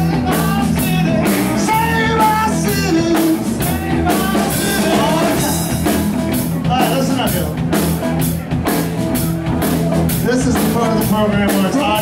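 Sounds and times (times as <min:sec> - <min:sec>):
drum kit beat: 0:00.0 - 0:12.0
electric guitars: 0:00.0 - 0:12.0.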